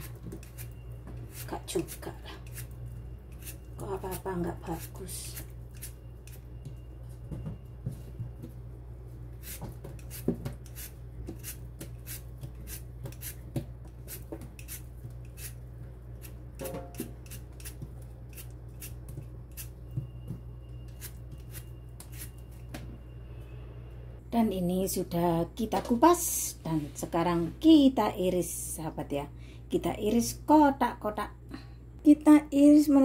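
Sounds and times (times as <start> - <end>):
peeler scraping potato skin: 0.0 - 6.4, 9.4 - 19.8, 20.9 - 22.4.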